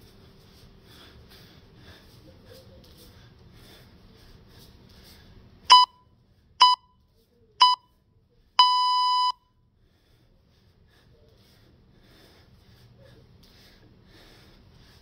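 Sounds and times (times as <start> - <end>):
timer beeps: 5.7 - 6.0, 6.6 - 7.0, 7.6 - 7.9, 8.6 - 9.4.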